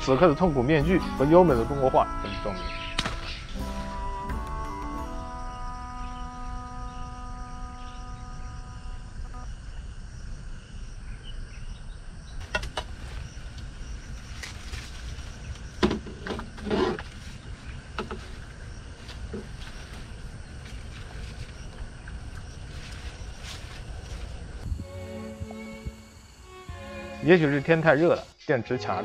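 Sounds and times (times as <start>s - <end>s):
background music: 0.0s - 8.9s, 24.6s - 29.0s
wind rumble on microphone: 12.0s - 26.4s.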